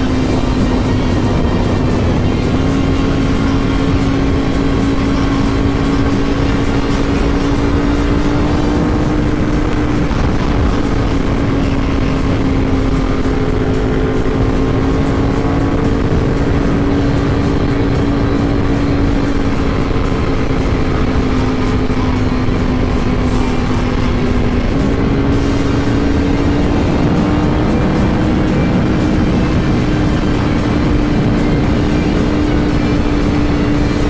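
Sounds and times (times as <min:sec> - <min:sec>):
motorcycle engine running: 0:00.0 - 0:34.0
wind rush: 0:00.0 - 0:34.0.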